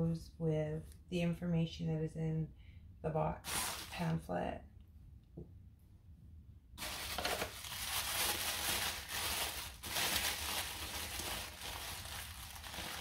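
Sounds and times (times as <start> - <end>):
tissue paper crinkling: 3.4 - 4.1, 6.8 - 13.0.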